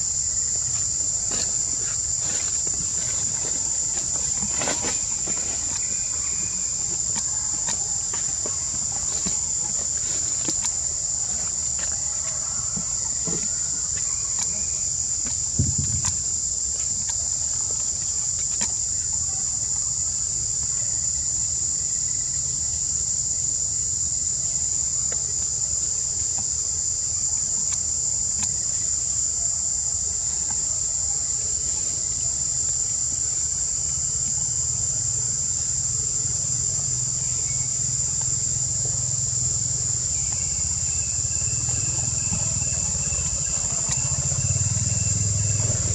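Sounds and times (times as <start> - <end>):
insects droning: 0.0 - 45.9
low thump: 15.6 - 16.2.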